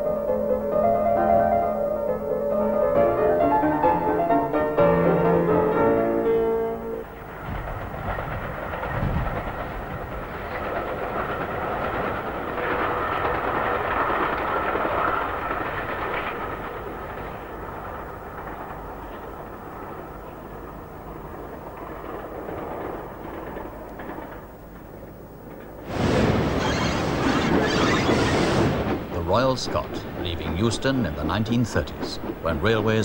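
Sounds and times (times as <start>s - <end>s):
music: 0.0s - 7.1s
train passing on rails: 0.0s - 33.0s.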